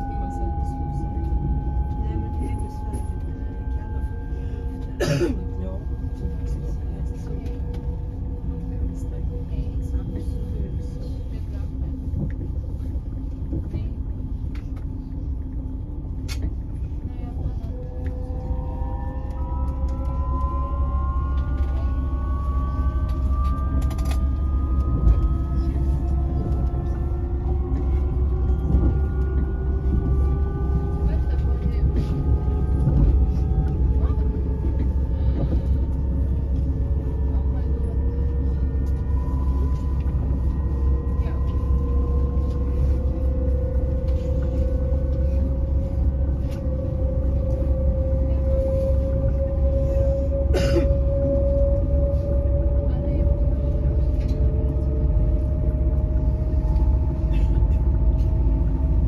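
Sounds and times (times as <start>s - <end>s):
train interior low rumble: 0.0s - 59.0s
traction motor whine rising: 17.7s - 35.1s.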